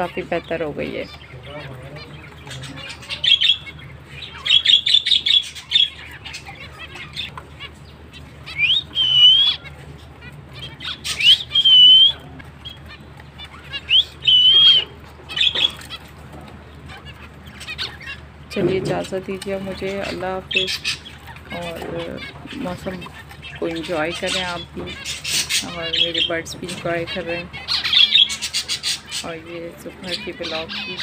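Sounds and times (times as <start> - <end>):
finches chattering: 0.0 - 31.0
whistled bird notes: 8.4 - 9.8, 10.5 - 16.0.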